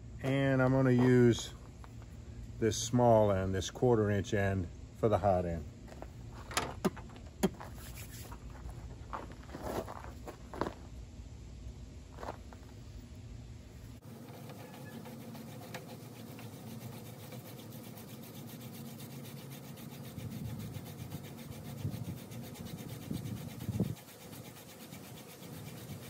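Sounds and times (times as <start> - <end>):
wooden spindle rubbing on fireboard: 5.9 - 10.7, 14.0 - 26.0.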